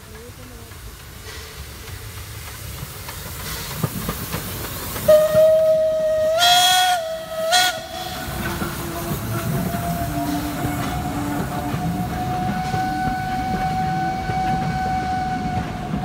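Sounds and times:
steam hissing: 0:00.0 - 0:16.0
train rumbling: 0:00.0 - 0:16.0
steam locomotive whistle: 0:05.0 - 0:16.0.

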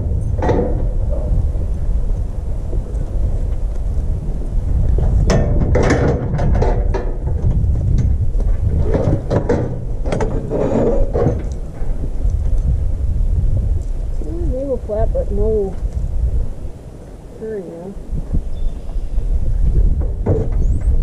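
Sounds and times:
wind rumbling on microphone: 0:00.0 - 0:21.0
steel chute rattling and clanking: 0:05.2 - 0:12.1.

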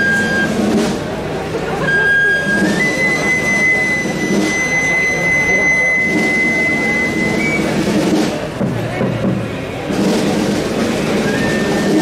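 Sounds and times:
murmur of large crowd: 0:00.0 - 0:12.0.

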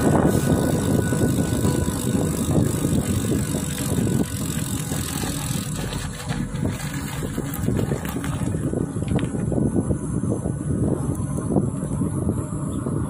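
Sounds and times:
tyres rolling on asphalt: 0:00.0 - 0:09.7
wind rumble on microphone: 0:00.0 - 0:13.0.

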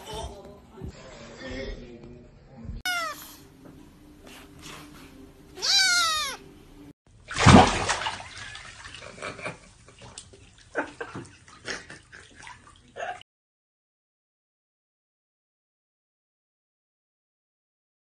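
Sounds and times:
kitten meowing: 0:02.9 - 0:03.4, 0:05.6 - 0:06.4.

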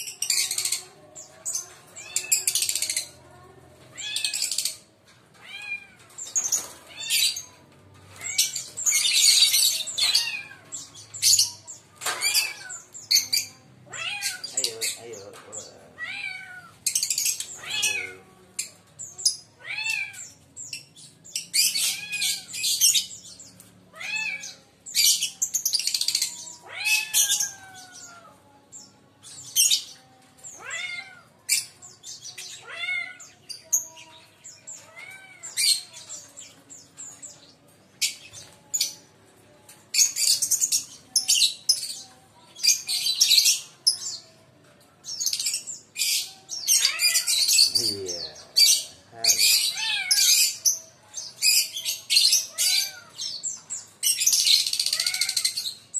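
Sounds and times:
high-pitched bird chattering: 0:00.0 - 0:03.2, 0:04.0 - 0:04.9, 0:06.1 - 0:28.2, 0:45.2 - 0:55.9
lovebirds shrieking: 0:00.0 - 0:03.2, 0:04.0 - 0:36.5, 0:45.0 - 0:55.9.

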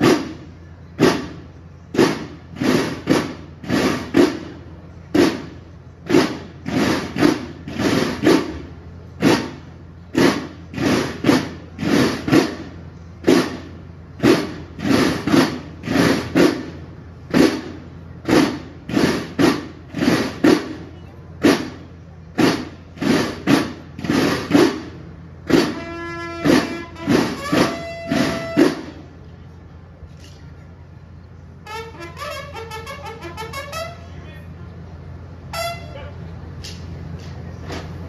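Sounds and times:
marching drums beating: 0:00.0 - 0:29.4, 0:31.6 - 0:36.4
bugle call: 0:25.5 - 0:28.9, 0:31.6 - 0:34.1, 0:35.5 - 0:36.2.

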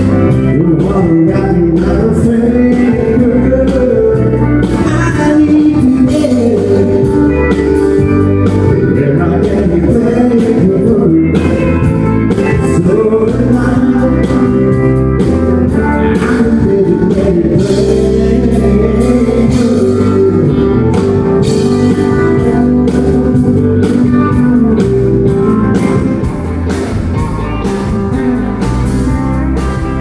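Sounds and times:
man singing into a microphone: 0:00.0 - 0:07.5, 0:08.6 - 0:24.8
bass line: 0:00.0 - 0:30.0
steady beat: 0:14.3 - 0:30.0.

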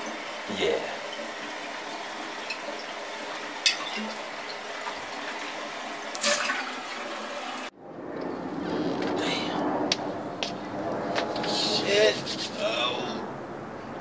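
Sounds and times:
sink tap running: 0:00.0 - 0:07.7
water splash: 0:02.4 - 0:07.7.

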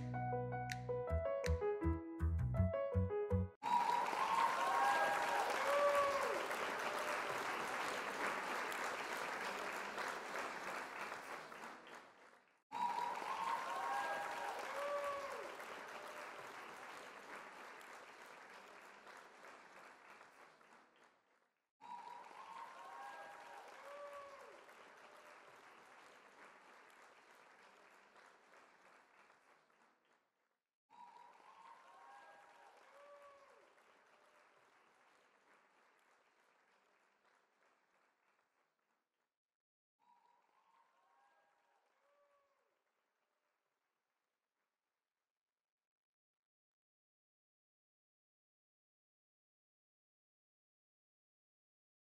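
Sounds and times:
crowd applause with cheering: 0:03.6 - 0:12.1, 0:12.7 - 0:20.6, 0:21.8 - 0:29.2, 0:31.1 - 0:35.2.

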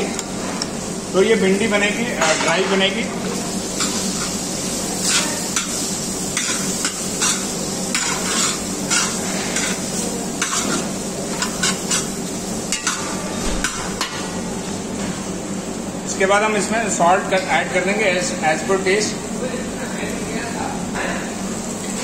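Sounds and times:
vegetables sizzling: 0:00.0 - 0:16.7.

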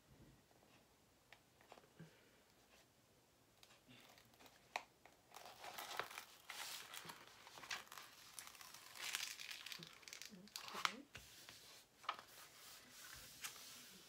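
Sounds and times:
sticky cover sheet peeling: 0:05.3 - 0:11.0.

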